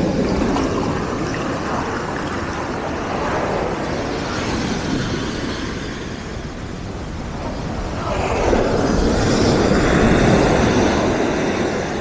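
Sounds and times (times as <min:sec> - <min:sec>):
waves breaking on pebble beach: 0:00.0 - 0:06.1.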